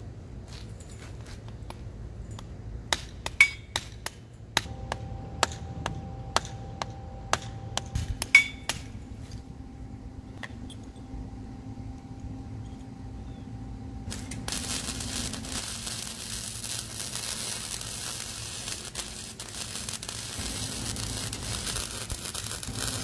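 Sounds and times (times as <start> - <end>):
hammer striking metal rod: 2.9 - 9.0.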